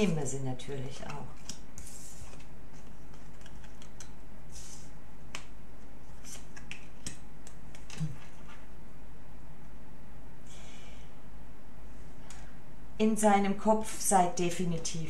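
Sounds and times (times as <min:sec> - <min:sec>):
cards sliding on wood: 0:04.5 - 0:04.9.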